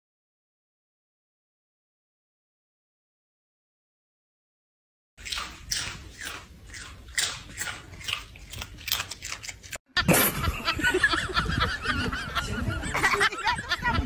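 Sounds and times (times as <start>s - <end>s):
dog crunching dry snack: 5.2s - 9.8s.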